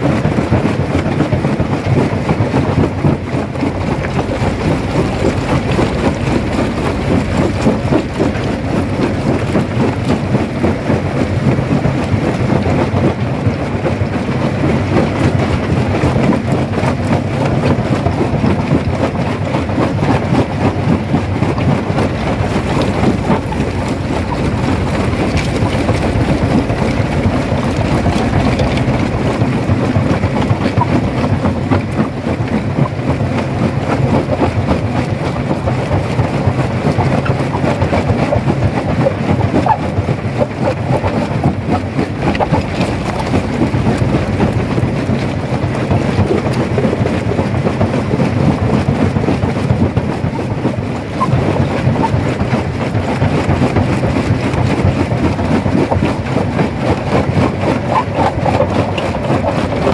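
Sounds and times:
crusher mechanical rumble: 0.0s - 59.9s
rock crunching and clattering: 22.1s - 30.6s, 42.1s - 46.6s.

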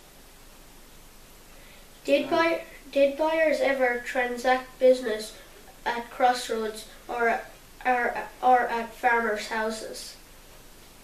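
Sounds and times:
faint room tone hiss: 0.0s - 11.0s.

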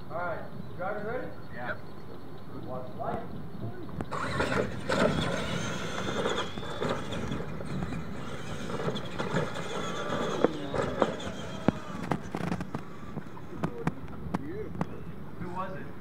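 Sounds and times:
whine of motors and gears: 0.5s - 15.8s
sharp clacks of trucks bouncing: 3.9s - 15.1s.

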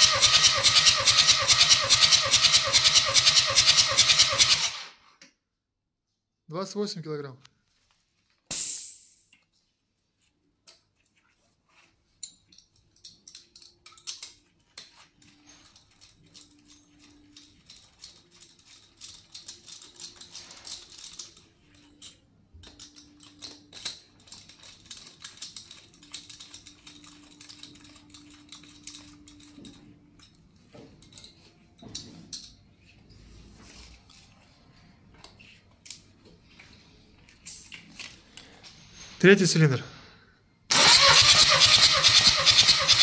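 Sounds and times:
gloved hands clicking and tapping parts: 12.1s - 32.9s, 35.1s - 38.5s.

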